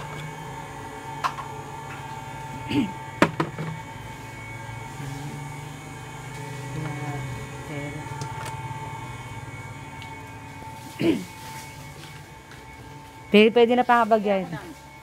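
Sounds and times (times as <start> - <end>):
steady hum: 0.0 - 15.0.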